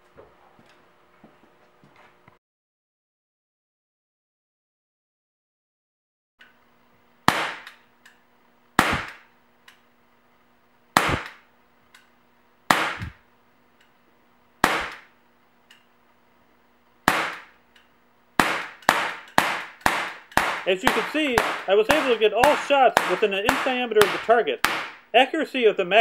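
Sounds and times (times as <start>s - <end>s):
faint steady hum: 6.4s - 26.0s
air pistol shots: 7.3s - 7.8s, 8.8s - 9.3s, 11.0s - 11.5s, 12.7s - 13.2s, 14.6s - 15.2s, 17.0s - 17.6s, 18.4s - 25.1s.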